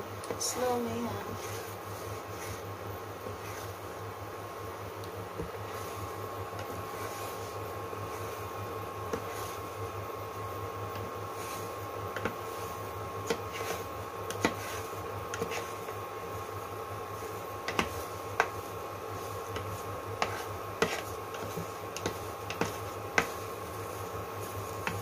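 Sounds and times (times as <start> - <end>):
induction cooktop fan hum: 0.0 - 25.0
plastic spatula tapping pan: 17.6 - 18.6, 19.5 - 23.4, 24.8 - 25.0.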